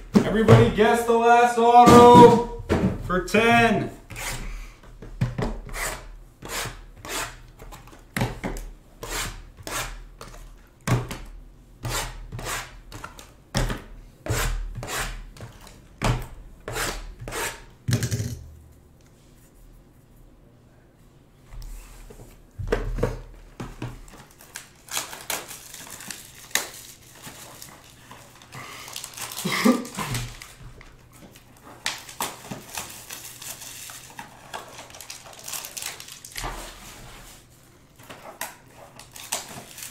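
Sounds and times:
boxes knocking on table: 1.9 - 3.1.

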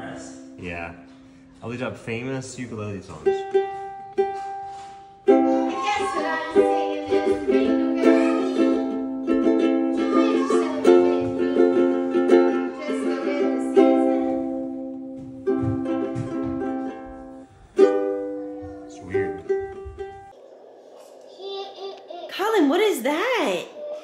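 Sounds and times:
ukulele strummed chords: 3.2 - 20.3.

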